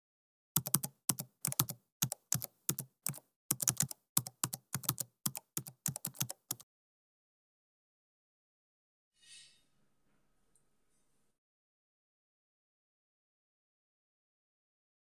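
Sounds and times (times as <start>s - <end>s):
keyboard key clicks: 0.6s - 6.6s.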